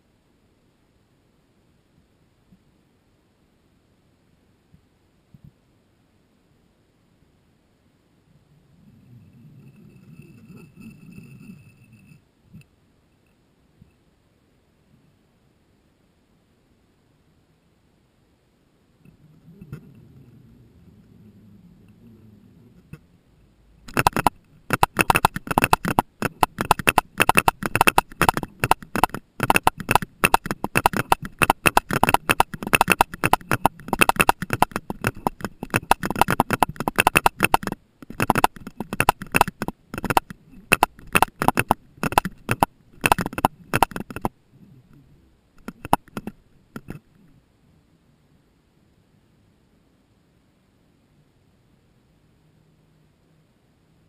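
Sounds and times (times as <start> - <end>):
rapid underwater clicks: 19.0 - 23.1, 23.8 - 47.4.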